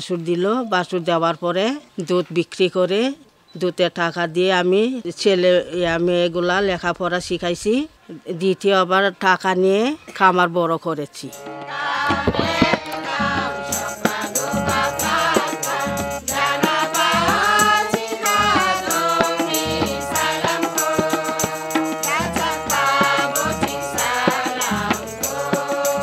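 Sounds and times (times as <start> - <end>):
harmonium: 11.3 - 26.0
hand drums beat: 11.5 - 26.0
women singing folk song: 11.5 - 26.0.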